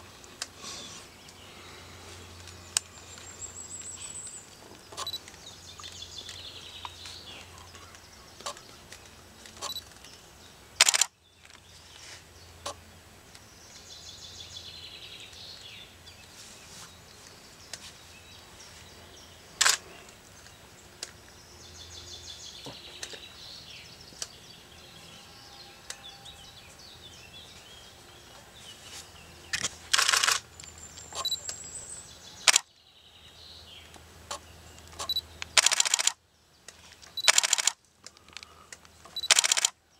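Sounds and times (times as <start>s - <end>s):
small birds singing: 0.0s - 39.9s
loud sharp clicks: 10.8s - 11.1s, 19.6s - 19.8s, 29.5s - 30.4s, 32.4s - 32.7s, 34.3s - 36.2s, 37.2s - 39.8s.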